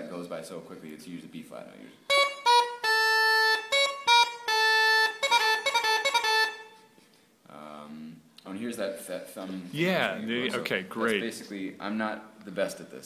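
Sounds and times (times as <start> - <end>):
uilleann pipes chanter playing: 2.1 - 6.9.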